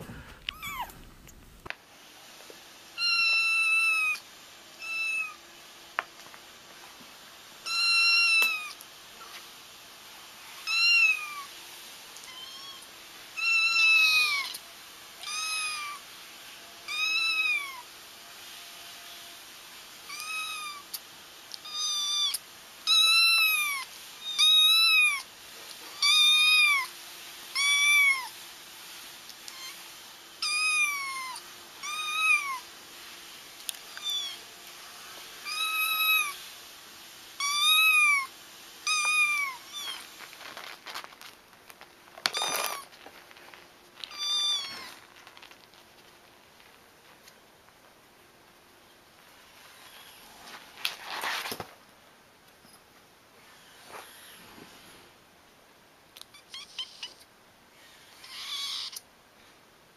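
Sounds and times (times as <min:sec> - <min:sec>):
kittens meowing: 0:00.0 - 0:01.4, 0:03.0 - 0:04.2, 0:07.7 - 0:08.8, 0:10.6 - 0:11.5, 0:12.2 - 0:14.6, 0:15.2 - 0:16.0, 0:30.4 - 0:32.6, 0:33.9 - 0:34.4, 0:37.4 - 0:40.1, 0:44.0 - 0:45.1, 0:56.3 - 0:57.2, 0:58.2 - 0:59.0.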